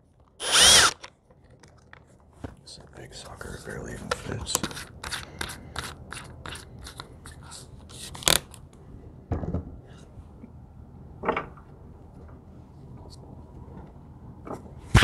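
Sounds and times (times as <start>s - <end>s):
drill clicks: 0.4s - 1.1s.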